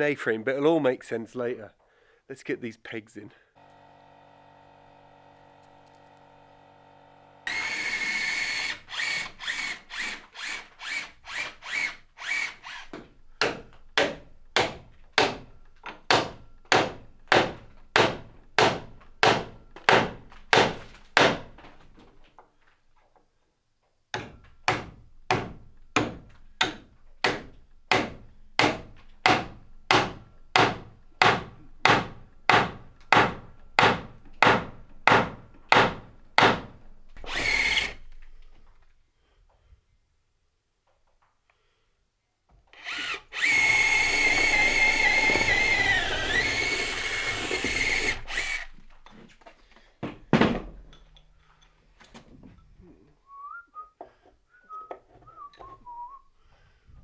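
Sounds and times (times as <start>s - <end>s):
hammer striking wooden pegs: 13.4s - 21.6s, 24.1s - 36.8s.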